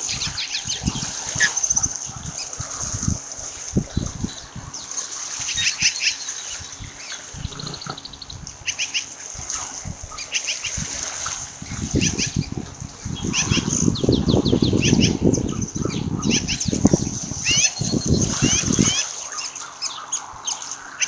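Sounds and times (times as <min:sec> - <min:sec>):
osprey chirping: 0:03.9 - 0:10.8, 0:11.7 - 0:21.0.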